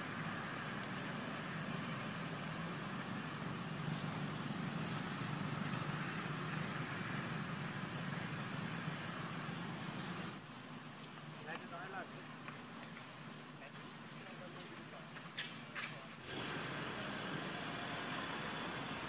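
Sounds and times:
short high-pitched whistle: 0:00.0 - 0:00.7, 0:02.2 - 0:03.0
low outdoor background rumble: 0:00.0 - 0:19.0.

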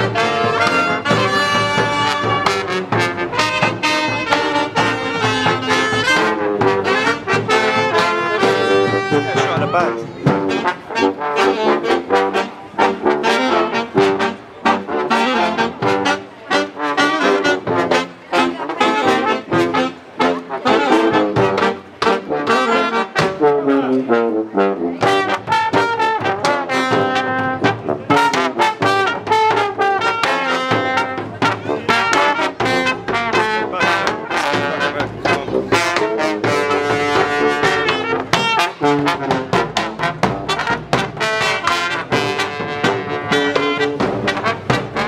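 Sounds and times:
bass drum beat: 0:00.0 - 0:10.8, 0:25.0 - 0:45.0
brass bass horn: 0:00.0 - 0:45.0
trumpets and saxophone: 0:00.0 - 0:45.0.

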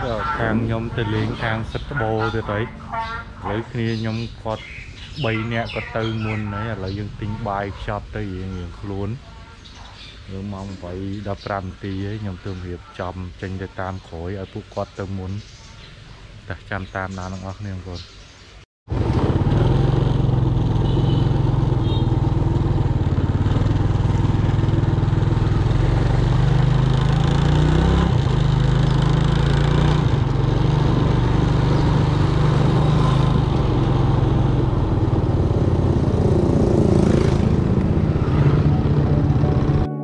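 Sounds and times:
small engine running: 0:18.9 - 0:39.8.

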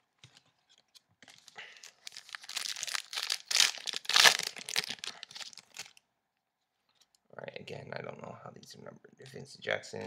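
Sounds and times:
plastic wrapper crinkling and tearing: 0:01.2 - 0:06.0.

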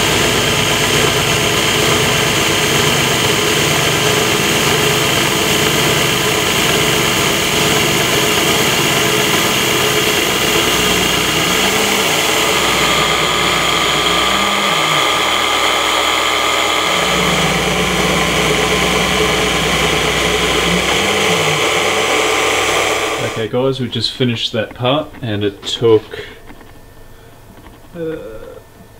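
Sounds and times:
milling machine cutting metal: 0:00.0 - 0:23.5
low tone gliding in pitch: 0:06.0 - 0:23.4.

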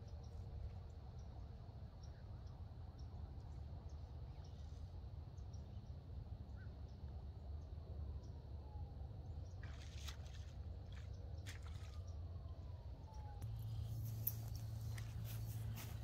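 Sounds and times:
faint bird chirps: 0:00.0 - 0:07.0.

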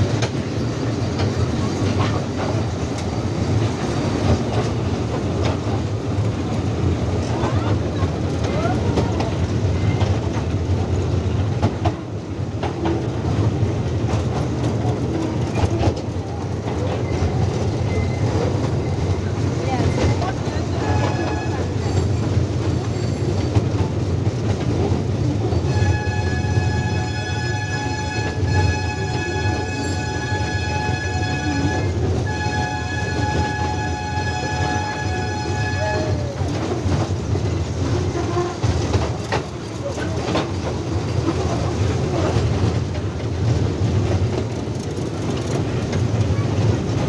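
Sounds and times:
small train rumbling on rails: 0:00.0 - 0:47.0
wheels clicking and knocking: 0:36.3 - 0:47.0.

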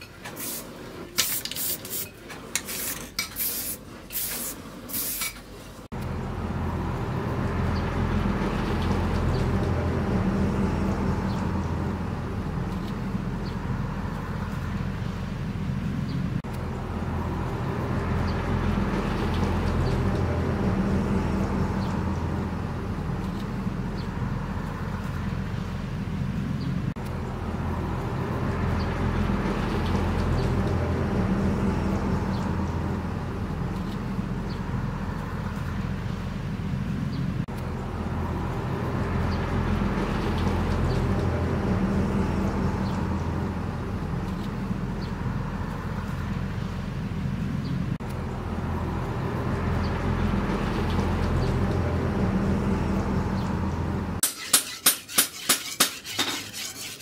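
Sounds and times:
aerosol spray can hissing: 0:01.2 - 0:02.1, 0:02.7 - 0:05.3
low engine-like drone: 0:05.8 - 0:54.2.

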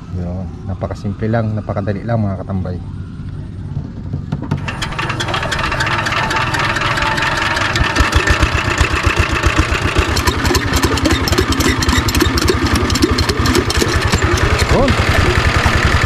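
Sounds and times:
water pump engine chugging: 0:04.5 - 0:16.0.

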